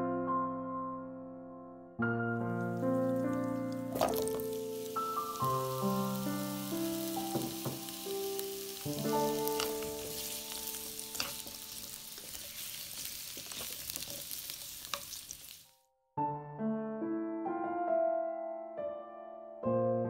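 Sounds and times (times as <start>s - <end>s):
soft background music: 0.0s - 12.8s
food sizzling in hot oil: 2.5s - 15.7s
spatula scraping wok: 2.7s - 15.7s.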